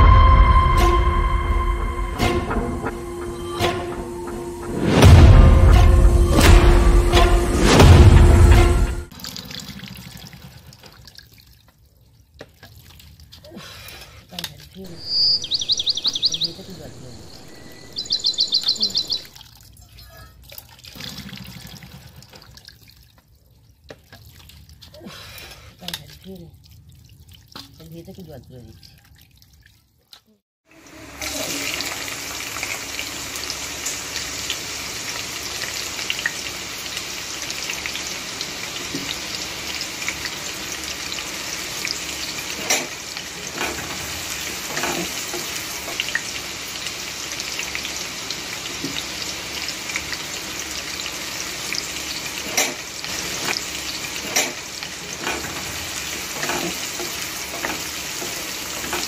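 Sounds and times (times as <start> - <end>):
onions sizzling in oil: 30.7 - 59.0.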